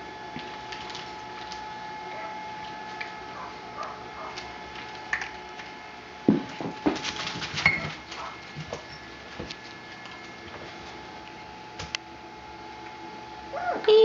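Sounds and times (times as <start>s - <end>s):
puppy paw patter: 0.4s - 11.0s
sharp knocks and bumps: 6.3s - 9.5s
newspaper rustling: 6.5s - 11.0s.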